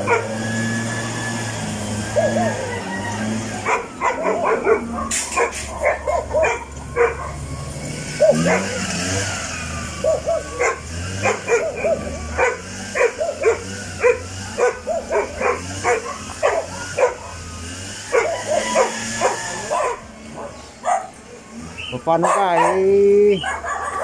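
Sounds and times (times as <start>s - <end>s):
dog barking: 0.0s - 0.4s, 3.6s - 7.4s, 8.2s - 8.9s, 10.0s - 17.4s, 18.1s - 21.2s, 22.1s - 24.0s.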